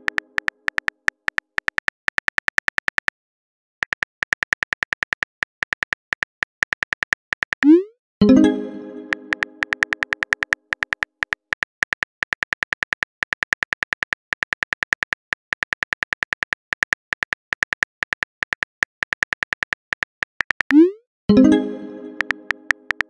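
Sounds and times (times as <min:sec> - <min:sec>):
keyboard tap clicks: 0:09.0 - 0:15.0, 0:22.1 - 0:23.0.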